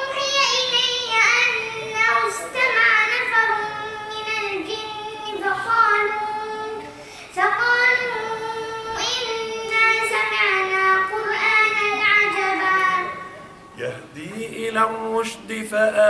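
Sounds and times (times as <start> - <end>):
boy reciting melodic chant: 0.0 - 16.0
boy breathing in: 6.9 - 7.4.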